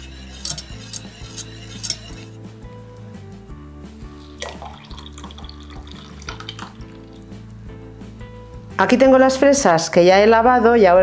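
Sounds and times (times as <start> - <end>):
whisk clinking against saucepan: 0.0 - 2.3
background music: 0.0 - 11.0
liquid pouring into jug: 4.2 - 7.4.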